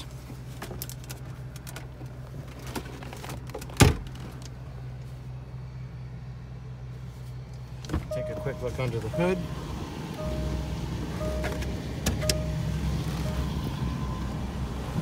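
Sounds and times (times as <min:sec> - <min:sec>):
car engine idling: 0:04.4 - 0:15.0.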